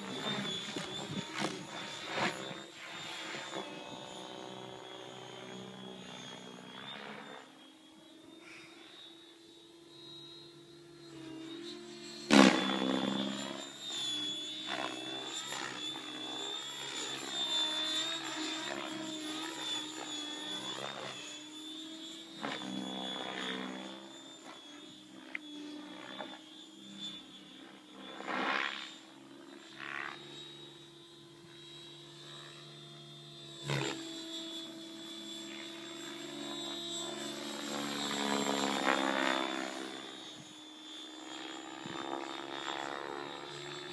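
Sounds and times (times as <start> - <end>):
high motor whine: 0.0 - 43.9
rotor whirring: 0.0 - 43.9.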